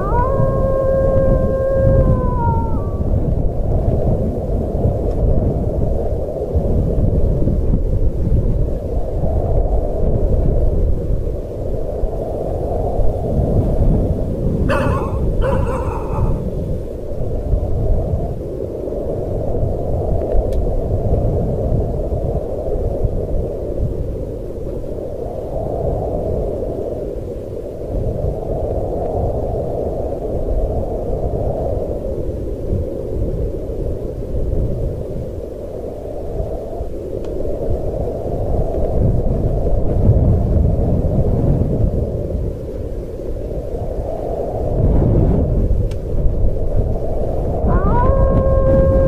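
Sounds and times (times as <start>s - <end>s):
low wind rumble: 0.0s - 49.0s
low rushing night ambience: 14.7s - 17.7s.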